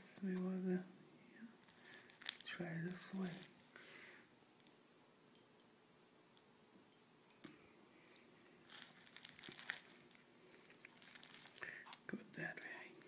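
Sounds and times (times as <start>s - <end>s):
bubble wrap crinkling: 1.6s - 3.8s, 8.0s - 12.5s.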